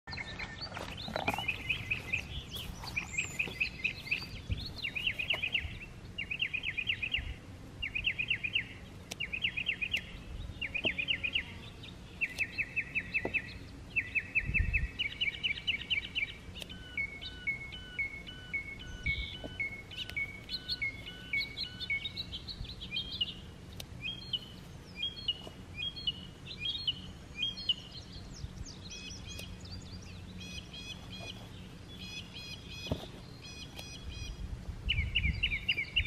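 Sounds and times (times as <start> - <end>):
songbird trilling: 0.1 - 36.0
bird whistling notes: 12.2 - 23.4.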